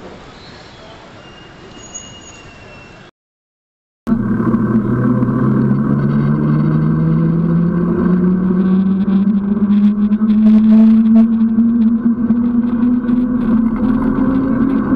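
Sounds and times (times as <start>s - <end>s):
vehicle engine accelerating: 4.1s - 14.9s.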